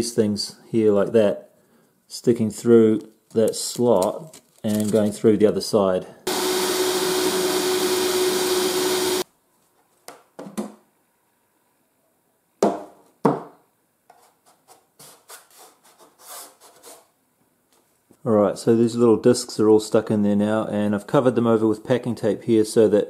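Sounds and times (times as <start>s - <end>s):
small drill whining: 6.3s - 9.2s.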